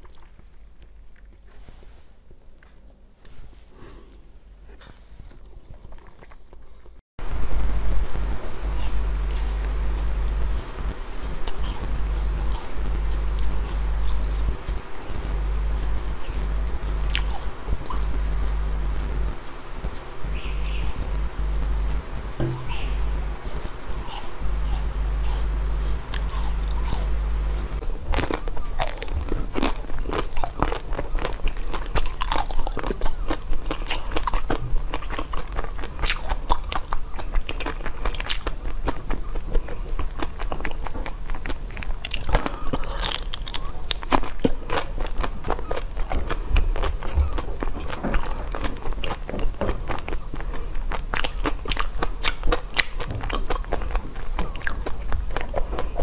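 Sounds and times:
chewing: 0:00.0 - 0:01.6, 0:03.9 - 0:07.0, 0:08.0 - 0:56.0
biting and crunching frozen treats: 0:04.7 - 0:07.0, 0:07.8 - 0:56.0
low hum: 0:07.2 - 0:39.4.

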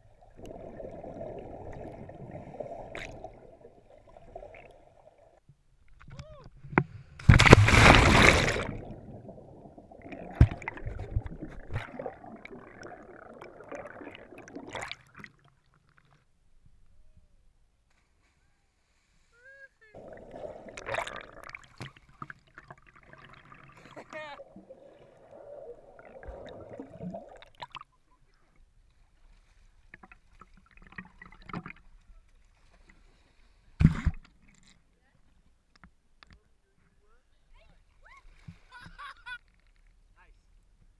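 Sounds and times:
underwater bubbles fizzing: 0:00.0 - 0:05.4, 0:07.2 - 0:16.0, 0:20.0 - 0:27.8
water splashing: 0:00.0 - 0:05.4, 0:07.2 - 0:16.2, 0:20.0 - 0:28.5
water splash breaking surface: 0:07.2 - 0:15.1.

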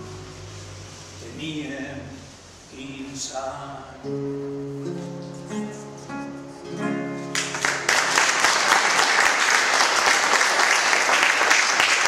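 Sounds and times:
audience applause: 0:07.3 - 0:12.0.

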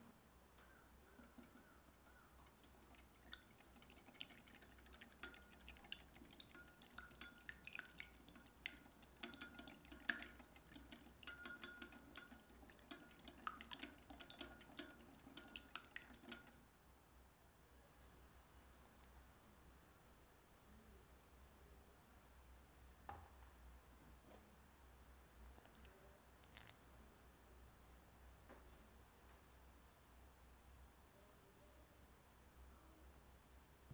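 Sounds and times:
whisk tapping glass bowl: 0:01.1 - 0:16.6.

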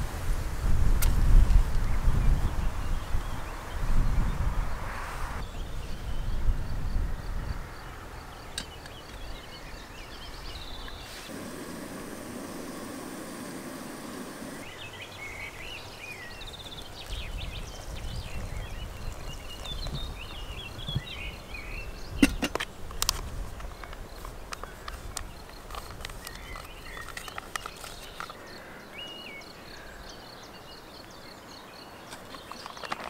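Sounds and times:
steady rushing noise: 0:11.2 - 0:15.2
birds chirping and singing: 0:12.2 - 0:22.5, 0:23.6 - 0:33.0.

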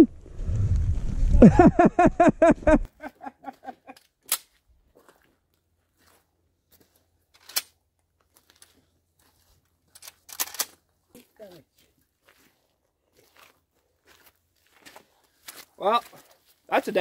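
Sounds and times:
person laughing: 0:01.4 - 0:04.0.

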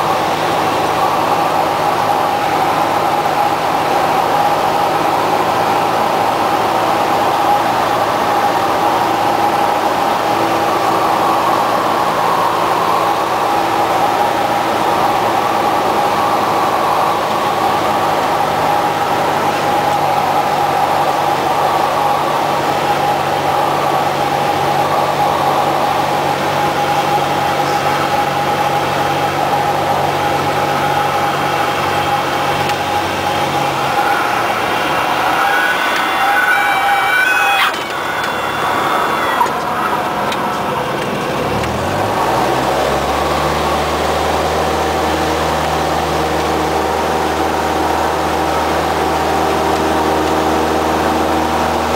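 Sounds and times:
airplane engine and propeller droning: 0:00.0 - 0:51.9
rushing airflow: 0:30.8 - 0:42.6.

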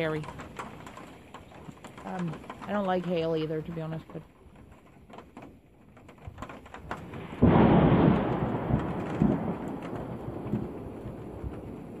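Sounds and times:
thunderclap: 0:06.4 - 0:12.0.

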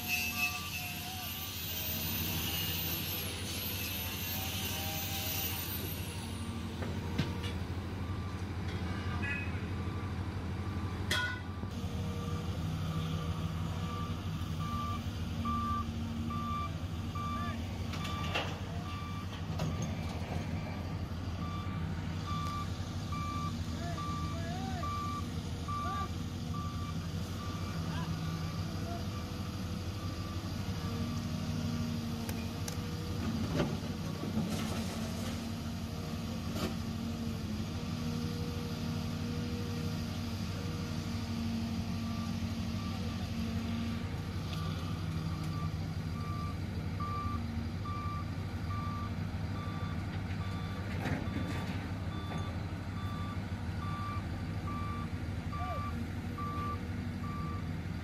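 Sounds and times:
excavator diesel engine running: 0:00.0 - 0:58.0
warning alarm beeping: 0:21.4 - 0:27.6.

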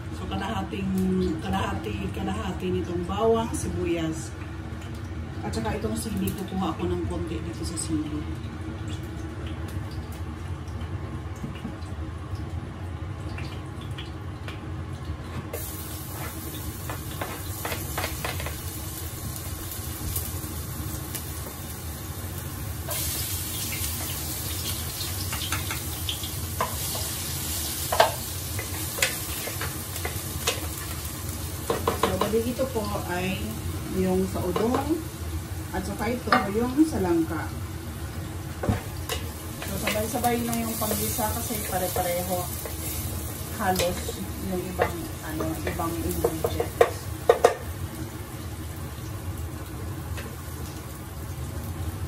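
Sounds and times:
oil sizzling in frying pans: 0:00.0 - 0:52.0
wooden spatula clacking on pan: 0:31.7 - 0:32.4, 0:44.8 - 0:47.6.

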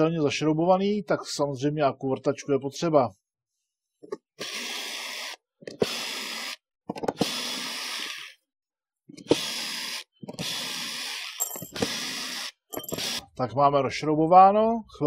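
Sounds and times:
cordless drill motor: 0:04.4 - 0:06.6, 0:07.2 - 0:08.4, 0:09.1 - 0:13.2.

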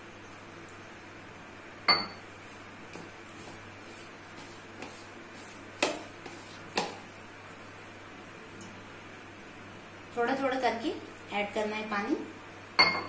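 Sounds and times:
hand mixing dough in bowl: 0:02.4 - 0:07.8.

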